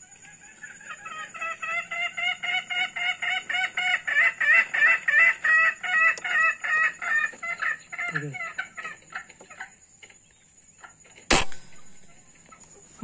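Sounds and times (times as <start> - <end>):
fowl clucking: 0.0 - 9.8.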